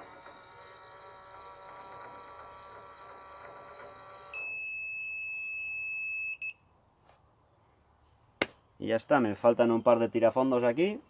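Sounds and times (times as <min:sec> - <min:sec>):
electric motor whirring: 0:00.0 - 0:04.4.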